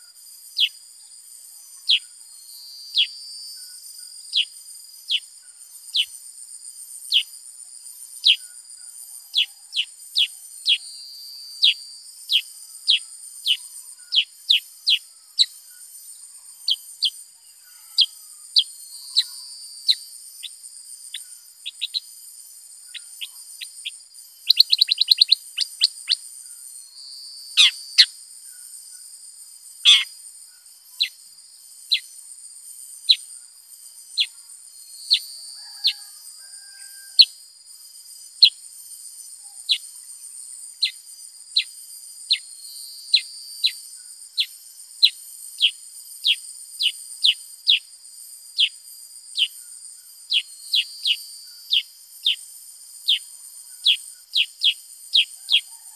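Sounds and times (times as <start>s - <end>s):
bird calling sharp whistled notes: 22.9s - 26.2s, 27.6s - 28.1s, 29.9s - 30.1s.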